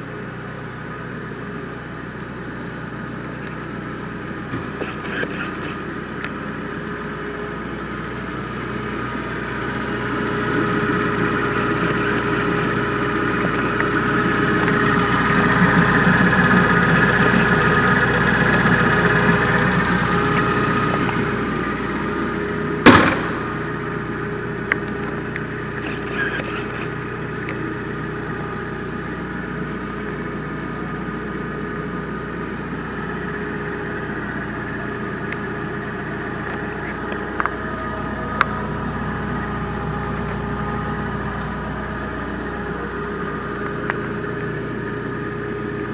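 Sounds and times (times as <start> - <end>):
forklift engine idling: 0.0 - 45.9
sharp bang: 22.8 - 23.6.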